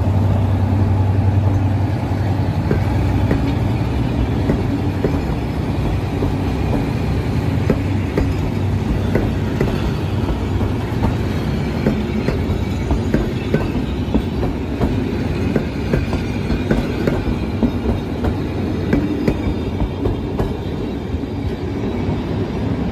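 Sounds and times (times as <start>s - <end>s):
train wheels rumbling on rails: 0.0s - 22.9s
wheels clacking over rail joints: 0.7s - 21.3s.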